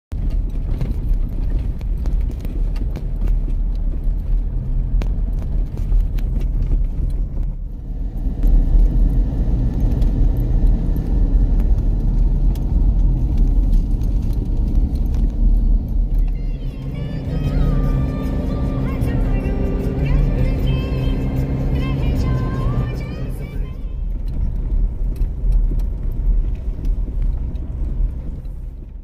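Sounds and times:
clicks and knocks on dirt track: 0.1 - 17.0, 23.9 - 29.0
vehicle ride rumble: 0.1 - 29.0.

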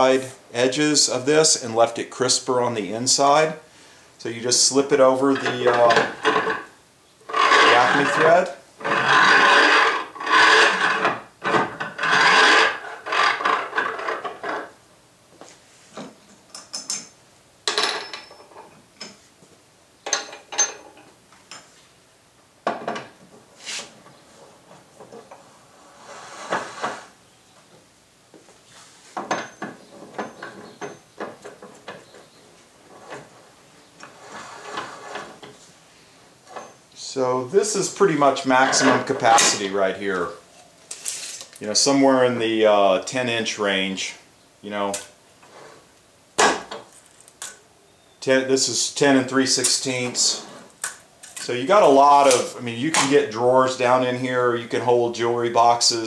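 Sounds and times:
wooden jaw scraping along screws: 5.2 - 6.7, 7.3 - 14.8.

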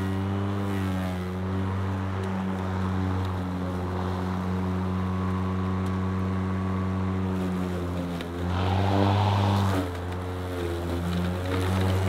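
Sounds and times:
lawn mower whirring hum: 0.0 - 12.0.

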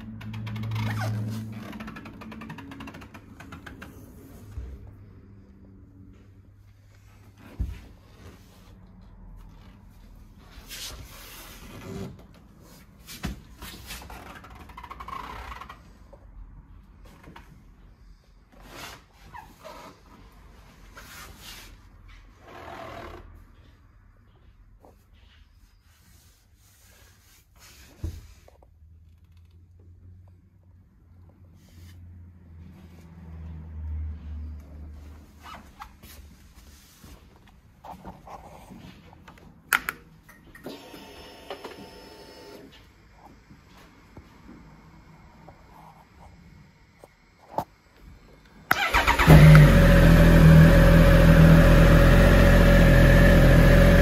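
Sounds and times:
soft rustling swishes: 34.8 - 39.6.

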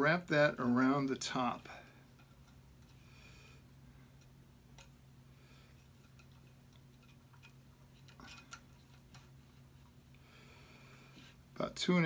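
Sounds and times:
low steady hum: 0.0 - 12.0
wire ticking and clicking: 1.2 - 3.0, 4.1 - 5.1, 5.7 - 9.4.

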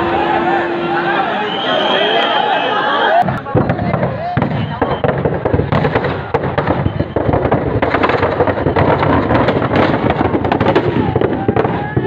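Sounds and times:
firecrackers crackling: 3.2 - 12.0.

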